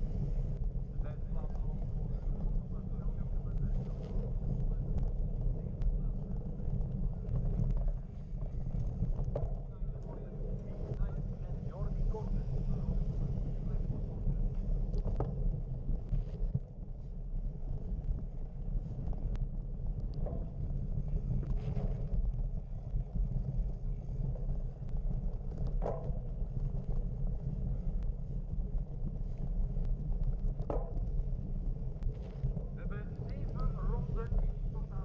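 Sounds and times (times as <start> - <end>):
low outdoor rumble: 0.0 - 35.0.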